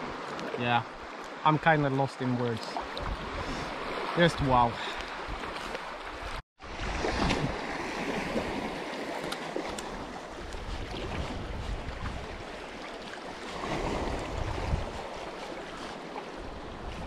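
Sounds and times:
waves lapping in shallow water: 0.0 - 17.0
wind buffeting microphone: 3.0 - 7.6, 9.7 - 12.6, 13.5 - 17.0.

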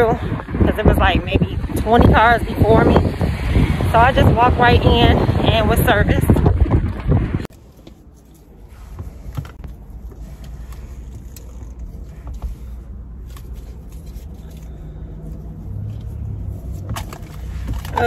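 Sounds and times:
low rumble inside car: 0.0 - 18.0
person rustling in car seat: 7.5 - 17.8.

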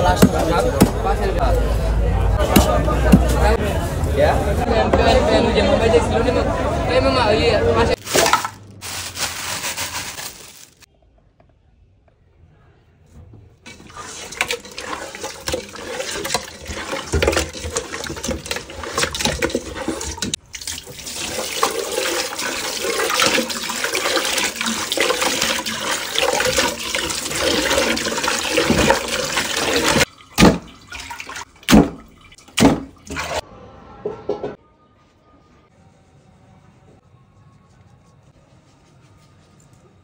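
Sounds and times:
fish being washed by hand: 13.7 - 33.4
tap water running into metal pot: 13.7 - 33.4.

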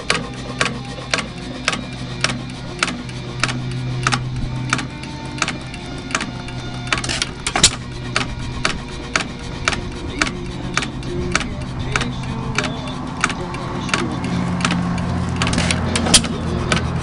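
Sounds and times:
hit-and-miss engine running: 0.0 - 17.0.

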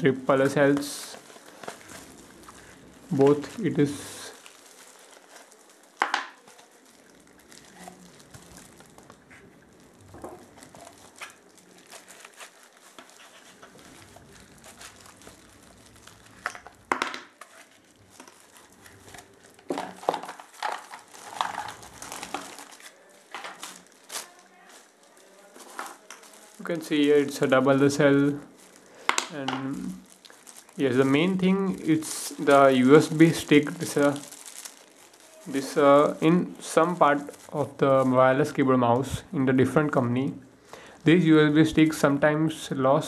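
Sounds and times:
cardboard and plastic wrap crinkling: 0.0 - 43.0.

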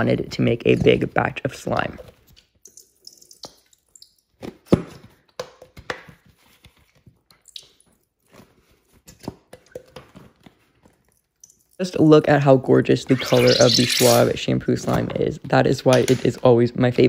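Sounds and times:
shampoo squelching from bottle: 13.1 - 14.4.

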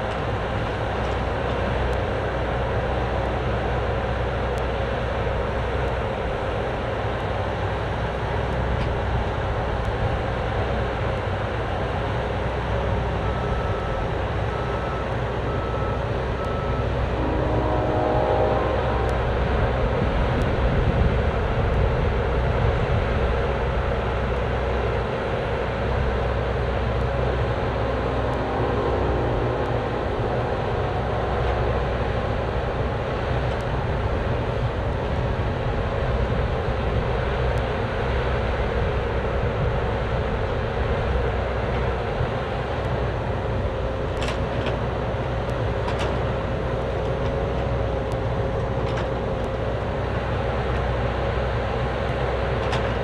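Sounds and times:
excavator diesel engine running: 0.0 - 53.0
hydraulic whine: 13.2 - 36.3
short beeps: 13.4 - 20.4.

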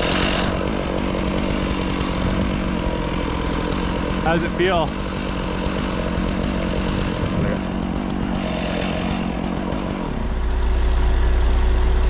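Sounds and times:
engine running at low speed: 0.0 - 12.0.

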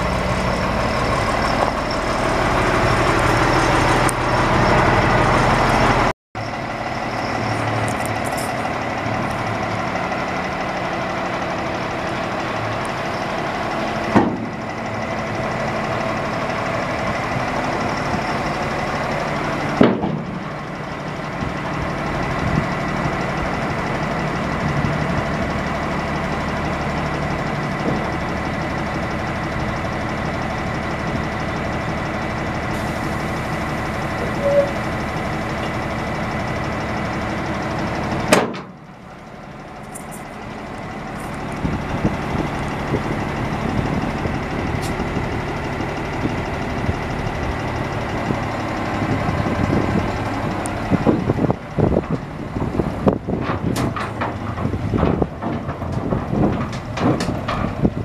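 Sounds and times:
diesel truck engine running: 0.0 - 58.0
knocks and clatters: 53.2 - 58.0.

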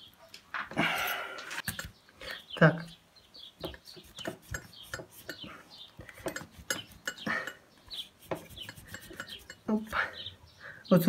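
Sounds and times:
metal tools clinking: 6.1 - 7.6, 8.6 - 9.7.

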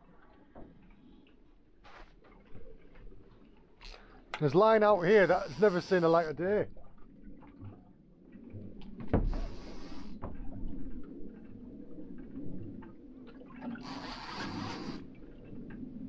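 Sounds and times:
water slapping against boat hull: 8.5 - 10.9
sharp thump on hull: 9.0 - 9.6.

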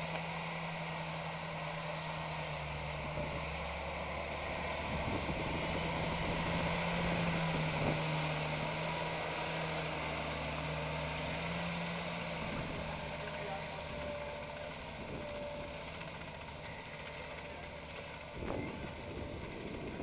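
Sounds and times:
tractor diesel engine running: 0.0 - 20.0.

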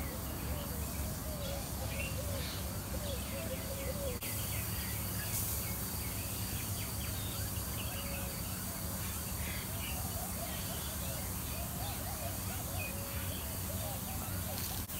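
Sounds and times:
birds chirping and calling: 0.0 - 14.9.

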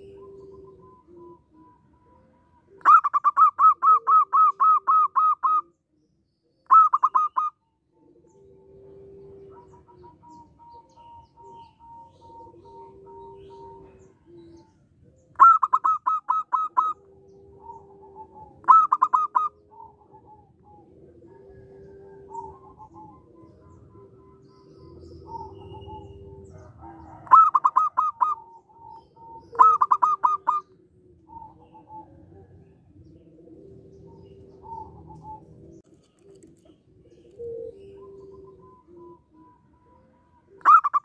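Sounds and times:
dove cooing: 0.0 - 41.0
faint low drawn-out notes: 30.7 - 36.0.

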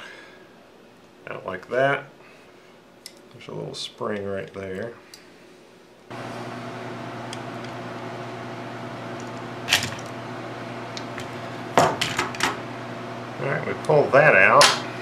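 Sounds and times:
machine humming: 6.1 - 15.0.

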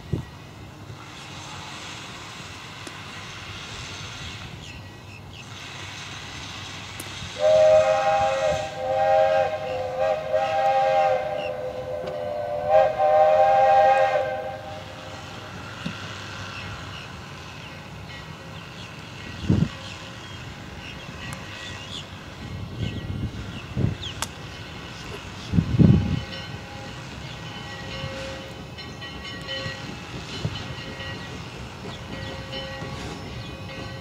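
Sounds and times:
steady background hiss: 0.2 - 22.6
steam locomotive chime whistle: 7.4 - 15.3, 25.7 - 31.5, 32.1 - 34.0.

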